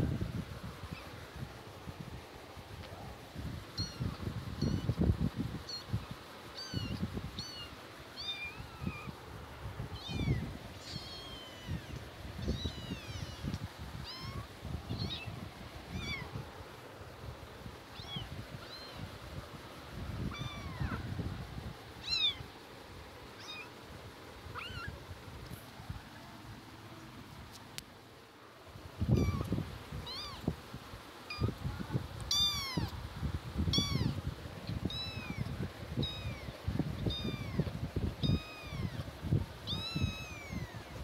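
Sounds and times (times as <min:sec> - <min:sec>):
kittens mewing: 0:09.9 - 0:16.4, 0:20.2 - 0:21.1, 0:22.0 - 0:22.5, 0:24.4 - 0:25.0, 0:29.0 - 0:30.6, 0:31.2 - 0:31.6, 0:32.2 - 0:33.0, 0:33.6 - 0:34.2, 0:34.8 - 0:39.1, 0:39.7 - 0:41.0.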